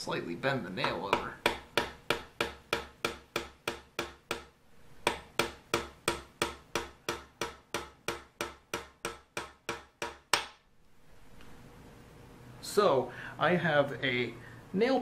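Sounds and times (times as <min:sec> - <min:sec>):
hammer tapping metal pin: 0:00.8 - 0:10.6.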